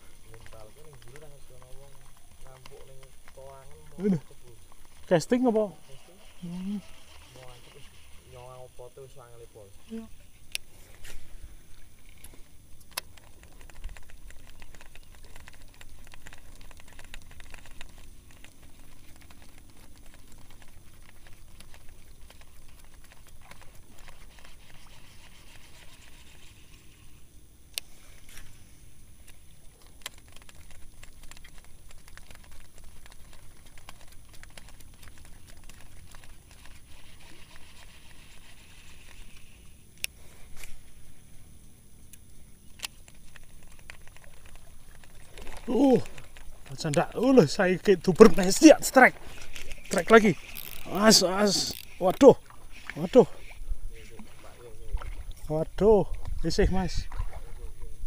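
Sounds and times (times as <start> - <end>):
small clicks and ticks: 0.0 - 11.2, 11.9 - 41.0, 41.6 - 57.0
fishing reel whirring: 0.0 - 29.4, 30.0 - 40.7, 42.7 - 56.0
wind rumble on microphone: 56.1 - 58.0.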